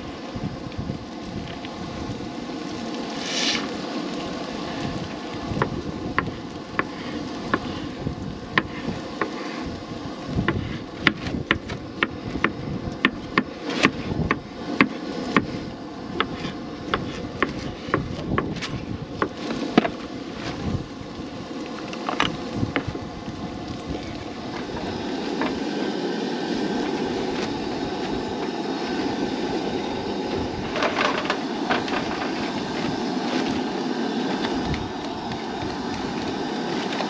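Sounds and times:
wind noise on microphone: 0.0s - 25.7s, 26.5s - 37.0s
knife scraping board: 3.2s - 3.7s, 16.2s - 20.6s.

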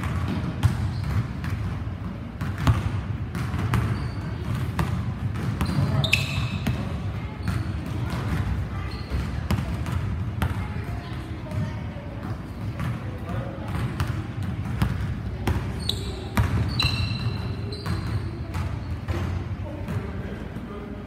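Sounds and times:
basketballs bouncing on hardwood: 0.0s - 20.0s
shoe squeak: 0.6s - 1.4s, 3.6s - 4.6s, 5.5s - 7.8s, 8.8s - 9.4s, 15.7s - 19.3s.

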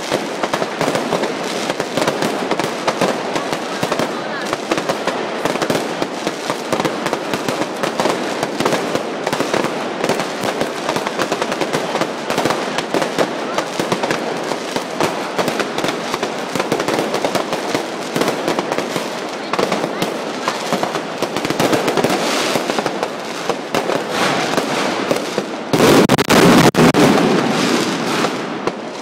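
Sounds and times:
fireworks bangs and crackles: 0.0s - 29.0s.

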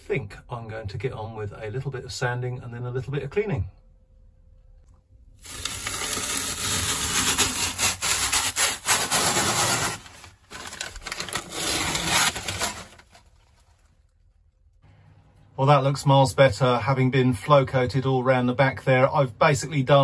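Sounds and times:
crackling tearing of peel ply: 5.4s - 14.0s.

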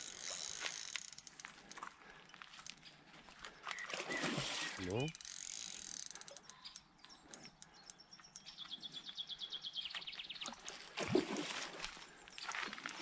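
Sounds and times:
fishing reel ratchet clicking: 0.0s - 1.5s, 5.0s - 6.8s.

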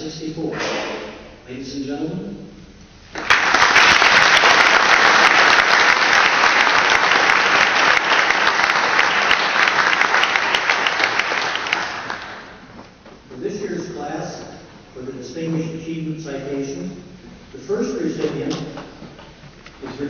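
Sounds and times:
audience applauding: 3.2s - 12.7s.

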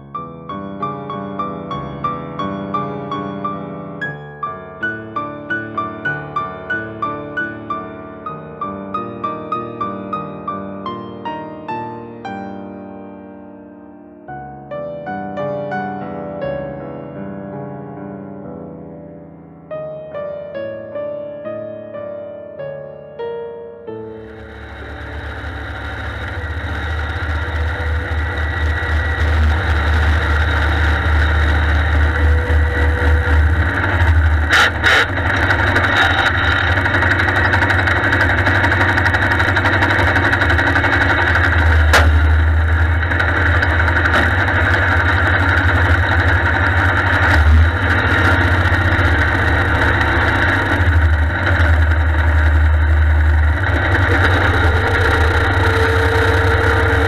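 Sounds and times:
tractor diesel engine rumbling: 24.1s - 57.0s.

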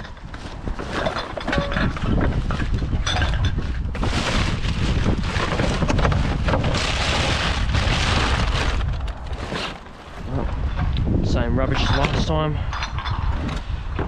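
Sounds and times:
wind rumble on microphone: 0.0s - 14.0s
plastic bags crinkling: 4.0s - 10.3s.

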